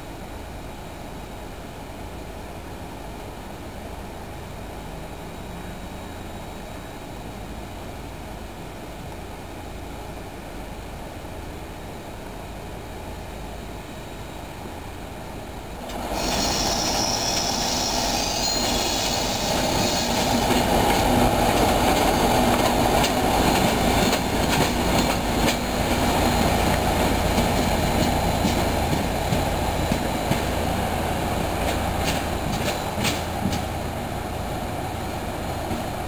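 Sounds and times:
diesel locomotive engine: 0.0s - 36.0s
wheels squealing: 15.9s - 20.8s
wheels clicking over rail joints: 31.6s - 33.7s.

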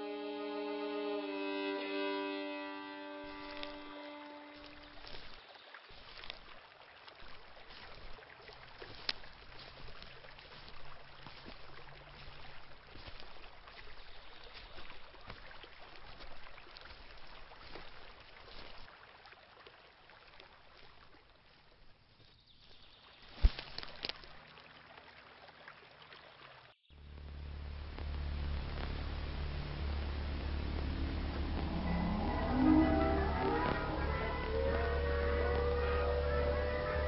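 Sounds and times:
footsteps crunching on forest floor: 3.0s - 18.9s, 20.8s - 24.4s
twigs snapping: 23.3s - 24.4s.

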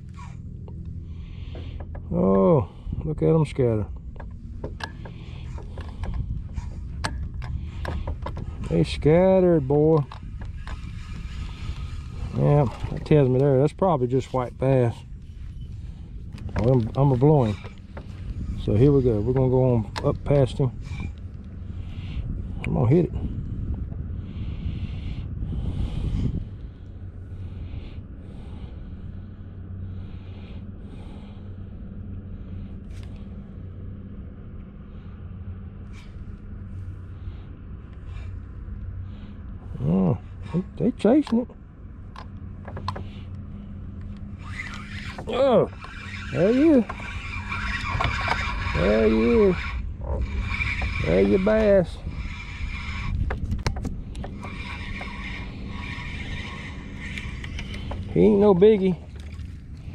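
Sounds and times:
fishing reel whirring: 0.0s - 22.8s, 35.9s - 59.9s
steady low rumble: 0.0s - 59.9s
reel clicks: 3.9s - 21.9s, 40.5s - 59.9s
electric motor humming: 37.9s - 59.9s.

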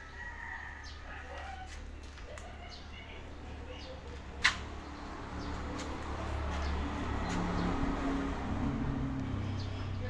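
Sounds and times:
vehicle engine running: 2.9s - 10.0s.

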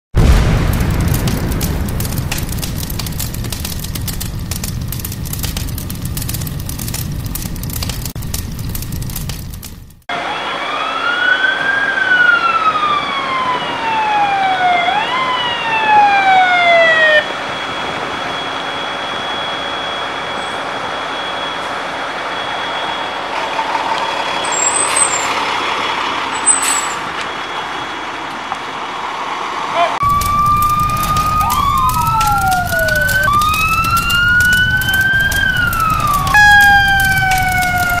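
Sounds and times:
rumble: 0.2s - 10.1s, 30.0s - 38.0s
fire truck siren wailing: 10.1s - 28.9s, 29.9s - 38.0s.

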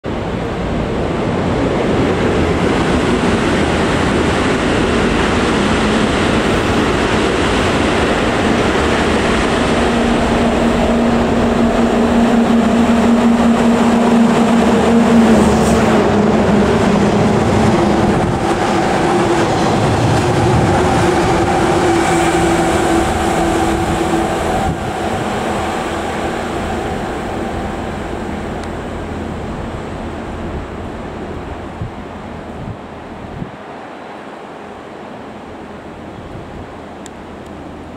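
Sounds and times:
diesel locomotive engine drone: 0.0s - 37.9s
train wheels on rails: 0.1s - 33.6s
steady humming tones: 7.4s - 33.0s.

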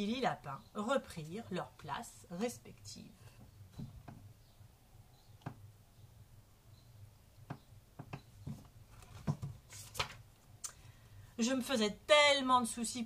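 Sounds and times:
faint taps and clicks: 5.4s - 5.6s, 7.4s - 10.8s
paper rustle: 8.9s - 10.2s.

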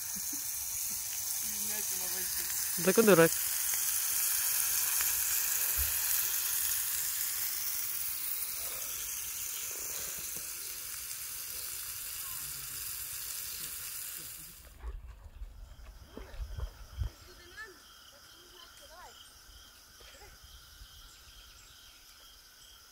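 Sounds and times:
burger patty sizzling in pan: 0.0s - 14.8s.

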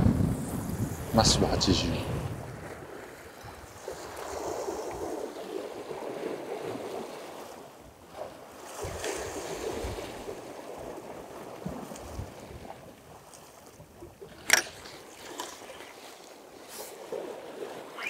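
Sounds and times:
wind buffeting microphone: 0.0s - 7.0s, 8.7s - 15.1s
waves washing against rocks: 0.0s - 13.2s.

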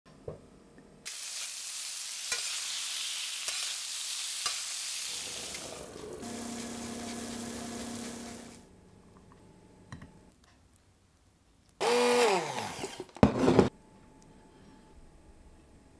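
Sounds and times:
meat sizzling in a frying pan: 1.1s - 8.5s.

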